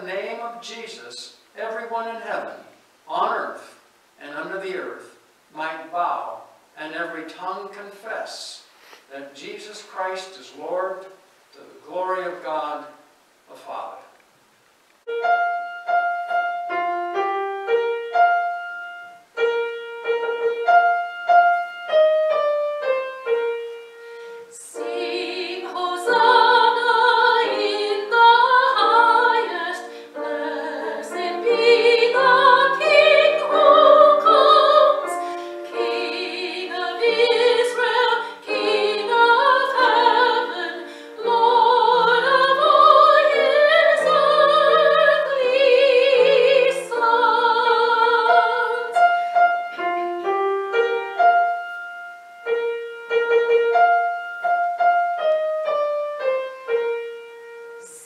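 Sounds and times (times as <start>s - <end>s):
woman singing with vibrato: 24.5s - 49.2s.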